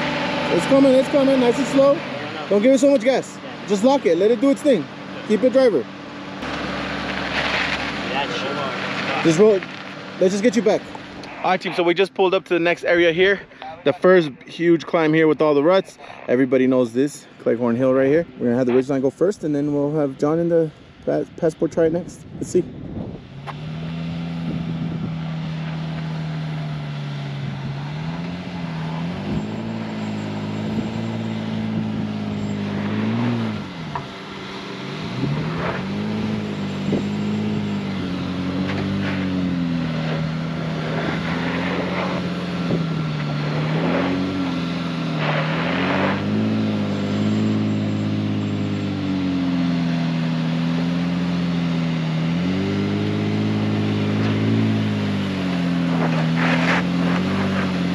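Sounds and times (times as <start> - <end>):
truck engine climbing: 0.0 - 57.9
knocks and scrapes: 6.4 - 10.1, 38.5 - 46.6, 55.4 - 57.9.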